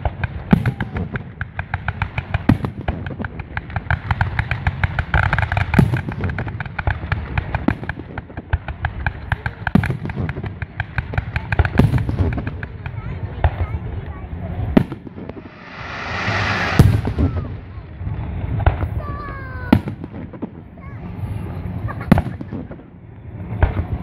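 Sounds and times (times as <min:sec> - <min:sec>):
low rumble: 0:15.2 - 0:18.6.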